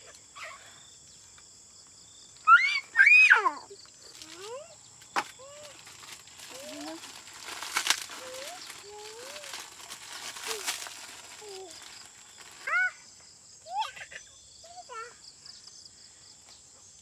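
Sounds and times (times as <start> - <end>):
crickets chirring: 0.0 - 17.0
rustling clatter: 5.7 - 12.6.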